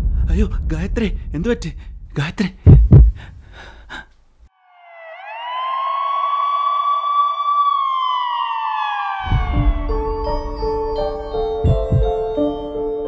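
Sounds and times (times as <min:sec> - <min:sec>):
siren long tone: 0:04.5 - 0:12.1
music: 0:09.6 - 0:13.0.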